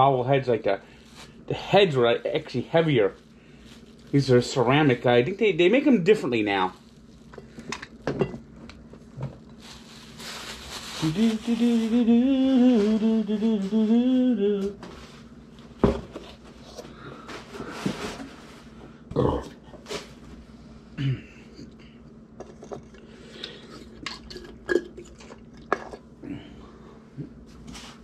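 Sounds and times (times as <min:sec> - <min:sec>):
plastic wrapping rustling: 0:02.2 - 0:05.2, 0:06.4 - 0:07.7, 0:08.8 - 0:14.0
man humming: 0:10.9 - 0:14.9, 0:21.0 - 0:21.9, 0:26.2 - 0:27.4.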